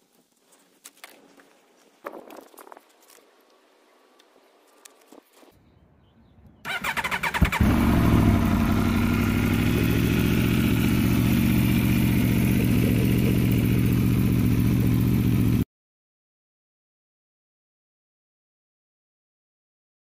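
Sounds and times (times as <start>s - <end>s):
motorcycle engine idling: 6.7s - 15.6s.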